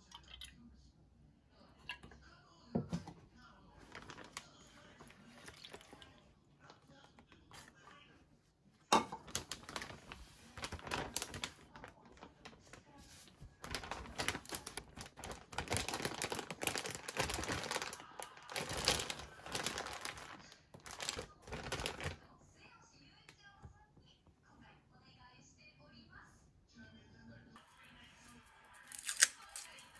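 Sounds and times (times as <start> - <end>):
plastic bag clicking and crinkling: 3.8 - 6.0, 9.0 - 22.2.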